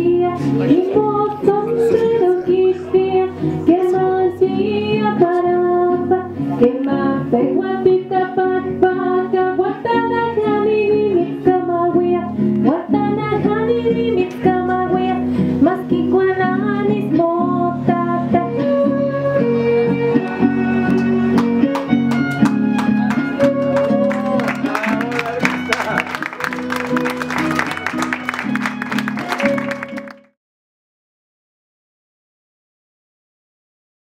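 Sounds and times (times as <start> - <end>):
song with plucked guitars: 0.0 - 30.3.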